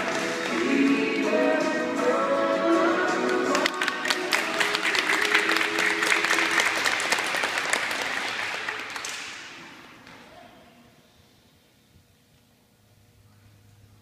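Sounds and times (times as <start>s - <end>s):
audience applauding: 0.0s - 0.9s, 3.4s - 9.6s
backing music: 0.0s - 7.4s.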